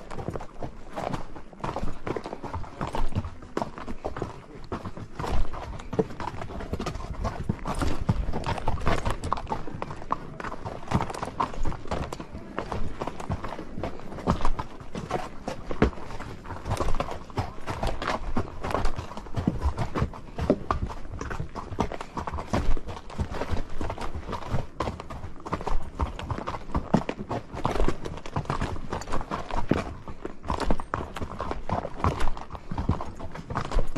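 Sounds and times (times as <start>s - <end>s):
horses hooves clip-clopping: 0.0s - 33.9s.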